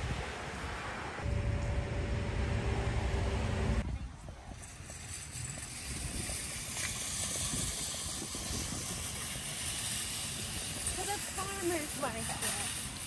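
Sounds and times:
wind rumbling on microphone: 0.0s - 13.0s
outdoor background hiss: 4.8s - 13.0s.

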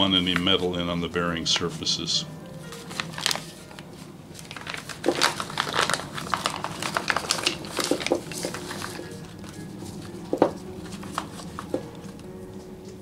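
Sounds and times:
plastic bag crinkling: 2.6s - 12.3s.

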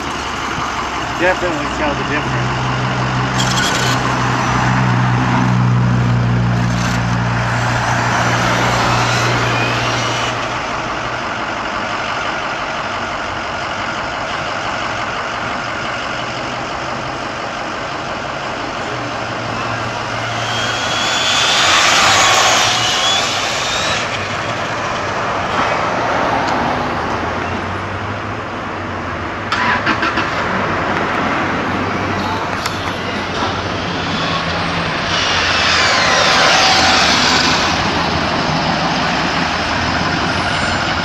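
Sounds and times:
low vehicle engine hum: 0.0s - 41.0s
rc truck electric motor whine: 2.9s - 11.0s, 19.3s - 25.6s, 32.2s - 41.0s.

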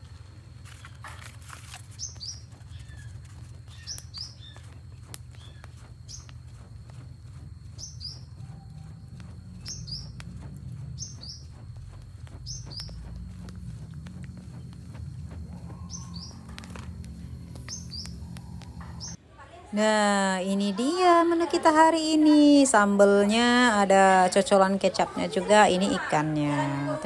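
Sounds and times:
steady low rumble: 0.0s - 19.2s
bird calling: 1.9s - 6.6s, 7.7s - 19.2s.

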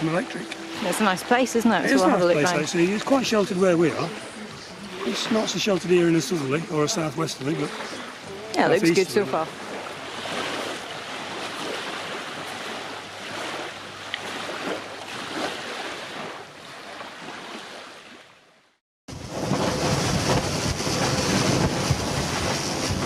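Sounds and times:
rushing water: 0.0s - 18.5s, 19.1s - 23.0s
wind buffeting microphone: 19.1s - 23.0s.

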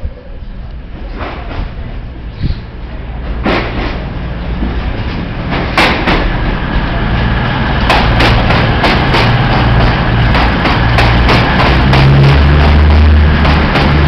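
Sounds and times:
diesel train engines humming: 0.0s - 14.0s
train wheels clacking over joints: 3.2s - 14.0s.

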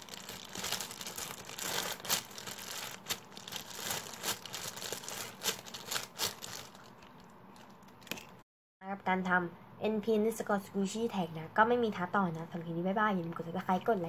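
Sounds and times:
plastic bag crinkling: 0.0s - 7.9s.

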